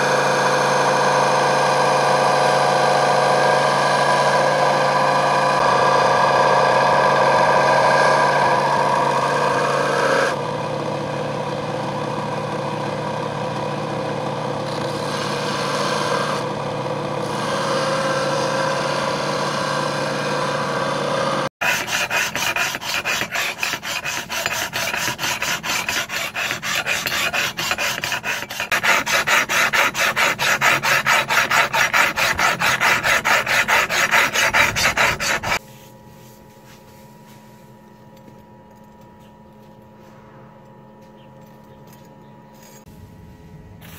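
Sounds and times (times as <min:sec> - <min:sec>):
power grinder running: 0:14.7 - 0:35.6
file scraping steel blade: 0:21.6 - 0:35.6.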